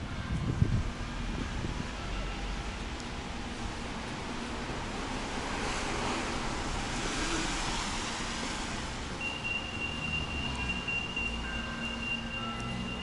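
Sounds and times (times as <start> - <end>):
tyre hiss on wet road: 4.9 - 9.0
high-pitched tone: 9.2 - 13.0.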